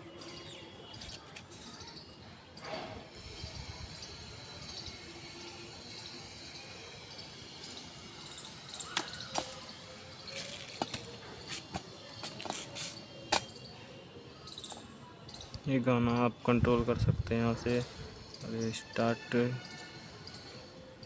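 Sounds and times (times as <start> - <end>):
faint outdoor background: 0.0 - 21.0.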